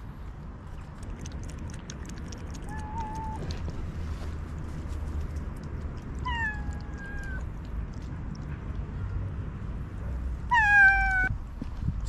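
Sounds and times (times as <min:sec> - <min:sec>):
kitten meowing: 0:02.7 - 0:03.4, 0:06.2 - 0:07.5, 0:10.5 - 0:11.3.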